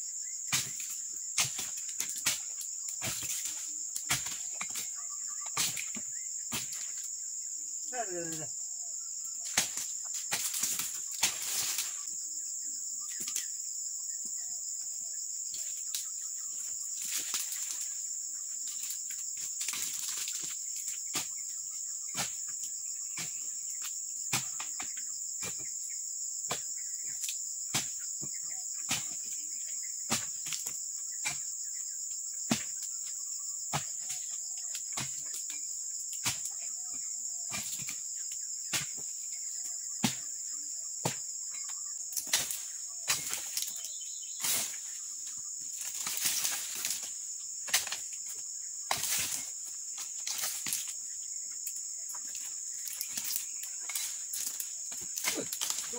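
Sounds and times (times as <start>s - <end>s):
high insect chirring: 0.0s - 55.9s
fronds rustling: 9.4s - 12.1s, 15.6s - 21.4s, 41.5s - 55.9s.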